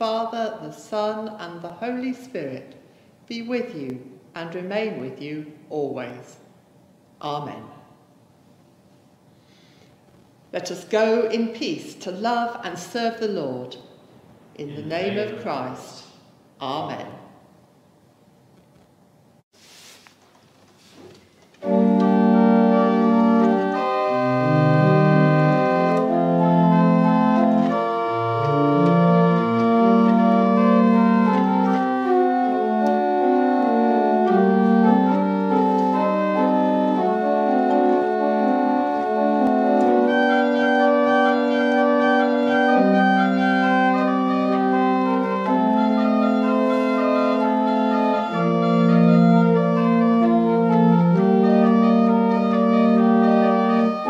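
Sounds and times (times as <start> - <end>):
pipe organ playing chords: 14.6 - 15.8, 21.6 - 54.0.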